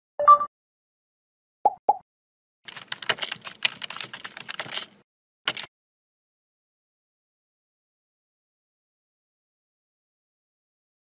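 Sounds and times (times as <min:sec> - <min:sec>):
keyboard key clicks: 0:02.7 - 0:05.7.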